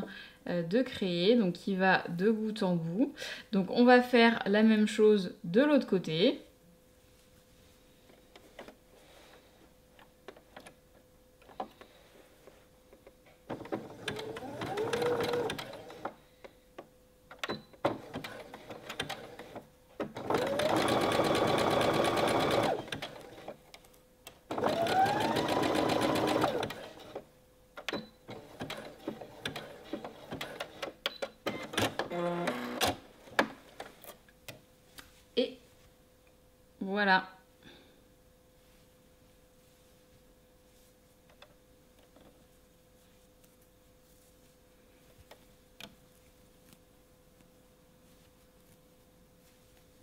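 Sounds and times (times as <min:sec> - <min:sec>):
sewing machine stitching: 0:13.5 - 0:16.2, 0:17.5 - 0:23.6, 0:24.5 - 0:27.2, 0:28.3 - 0:33.8.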